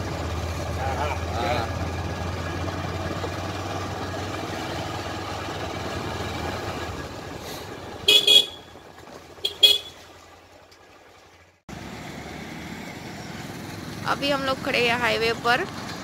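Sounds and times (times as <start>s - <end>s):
vehicle running noise: 0.0s - 16.0s
vehicle horn beeps: 8.0s - 8.8s, 9.4s - 10.0s.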